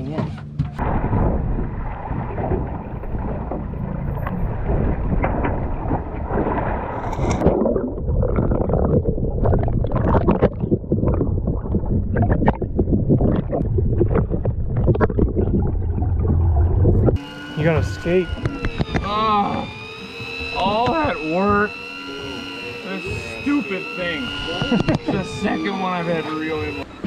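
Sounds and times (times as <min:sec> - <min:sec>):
underwater sloshing and bubbling: 0:00.8 - 0:19.0, 0:19.6 - 0:27.0
steady low rumble: 0:00.8 - 0:19.4.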